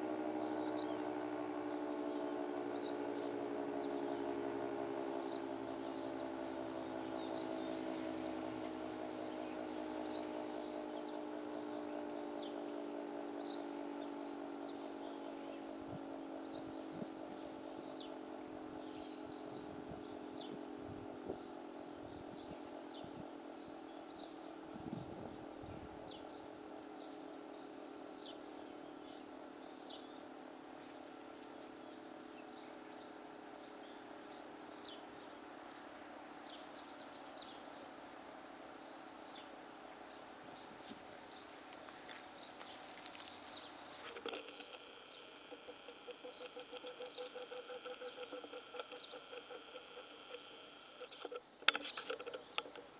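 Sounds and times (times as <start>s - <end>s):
warning siren winding down: 0.0s - 21.3s, 43.9s - 51.4s
birds chirping: 0.0s - 52.9s.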